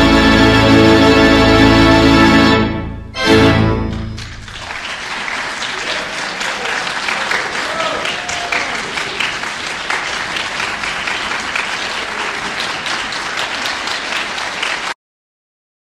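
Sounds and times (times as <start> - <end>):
audience applauding: 3.4 - 15.0.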